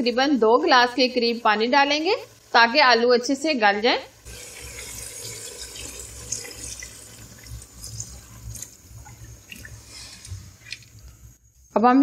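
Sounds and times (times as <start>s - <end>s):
water pouring into hot pot: 4.2s - 11.0s.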